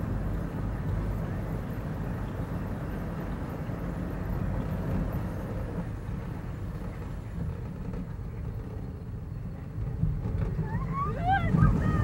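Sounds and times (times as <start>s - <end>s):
roller coaster low rumble: 0.0s - 12.0s.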